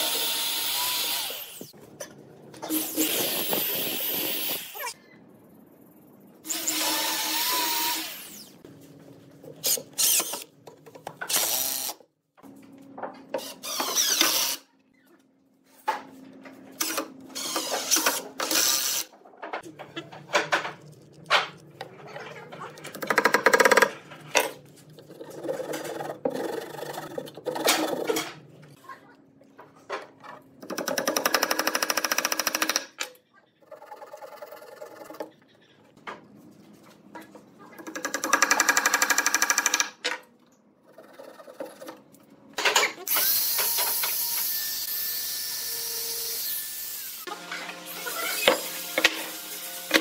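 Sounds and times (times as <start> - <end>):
power tool buzzing: 0.0 - 1.7.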